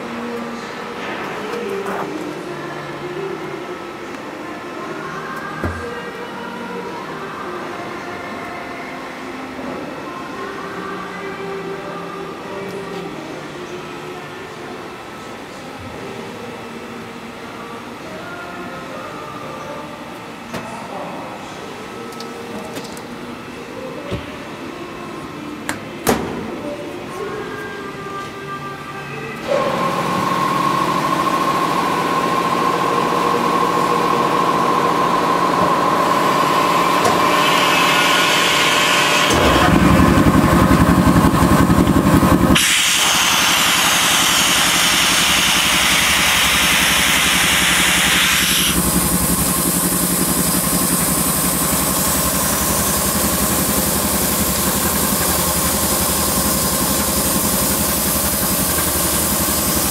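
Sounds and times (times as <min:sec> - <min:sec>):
laminating machine humming: 0:29.3 - 0:59.9
machine hissing: 0:33.1 - 0:59.9.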